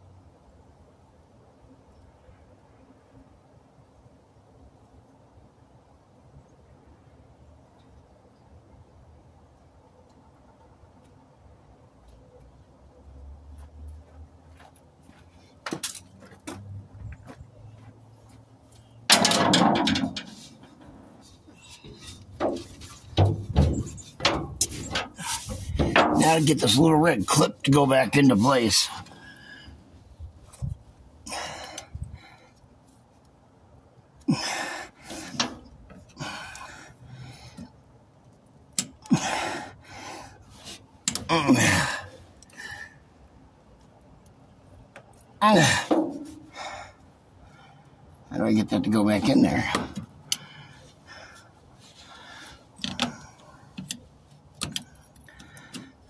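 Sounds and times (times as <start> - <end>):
metal rattling clatter: 19.1 - 21.2, 21.9 - 26.7
man breathing hard and grunting: 31.2 - 32.4, 34.3 - 35.4, 36.2 - 37.6, 39.0 - 40.4, 41.3 - 43.0.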